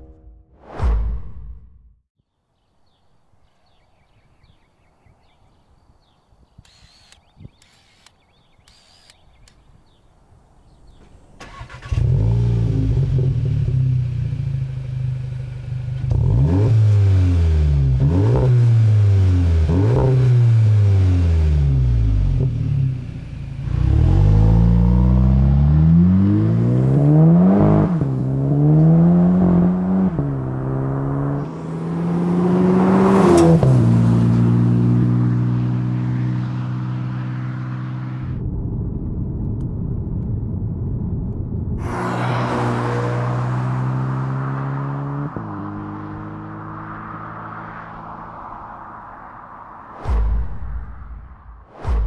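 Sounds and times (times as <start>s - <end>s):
car engine starting and revving: 10.9s - 38.4s, 41.8s - 48.7s.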